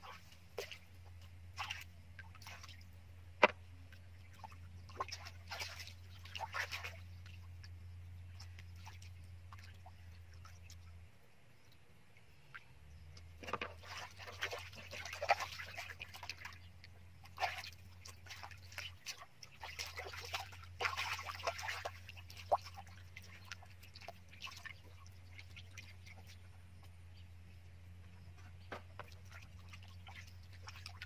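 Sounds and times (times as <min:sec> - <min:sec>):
steady low hum: 0:00.0 - 0:31.0
hands splashing in muddy water: 0:04.9 - 0:07.1, 0:17.2 - 0:26.4.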